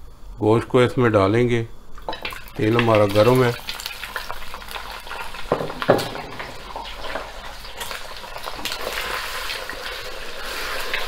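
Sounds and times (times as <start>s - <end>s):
meat sizzling in oil: 2.1s - 11.0s
knocks on pot: 5.5s - 6.6s.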